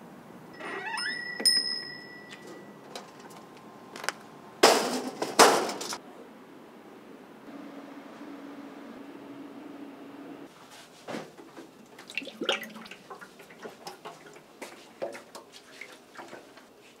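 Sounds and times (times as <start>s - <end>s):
rising squeak: 0.6s - 2.7s
ringing clink: 0.6s - 2.8s
kitchen clatter: 4.6s - 6.0s.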